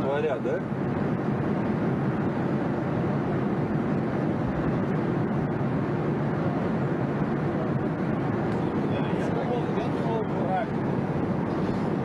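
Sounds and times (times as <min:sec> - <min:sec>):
jet airliner cabin noise: 0:00.0 - 0:12.0.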